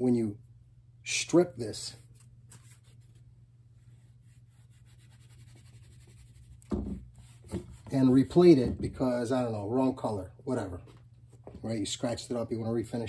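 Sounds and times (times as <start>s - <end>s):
tissue rubbing whiteboard: 2.0s - 8.1s.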